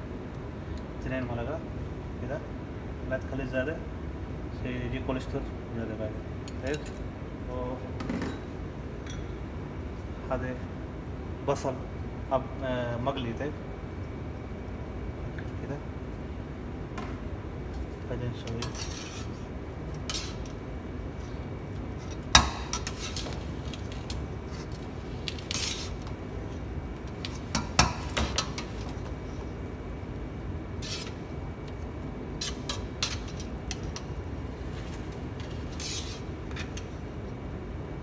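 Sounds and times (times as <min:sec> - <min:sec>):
steady low hum: 0:00.0 - 0:38.0
metal spoon scraping a pot: 0:18.5 - 0:19.4, 0:35.5 - 0:36.9.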